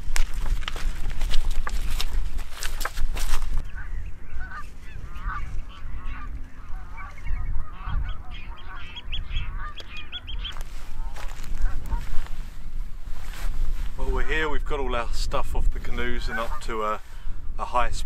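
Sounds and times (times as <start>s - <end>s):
wind rumble on microphone: 0.0s - 18.0s
geese honking: 3.6s - 12.4s, 16.2s - 16.8s.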